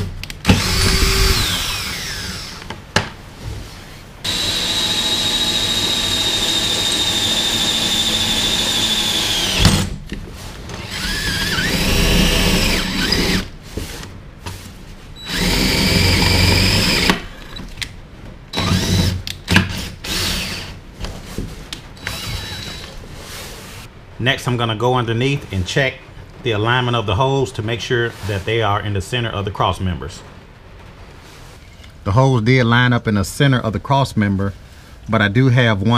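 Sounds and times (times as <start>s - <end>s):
cordless drill boring: 0.4s - 2.7s, 4.3s - 9.8s, 10.8s - 13.5s, 15.2s - 17.6s, 18.6s - 20.8s, 22.0s - 22.9s.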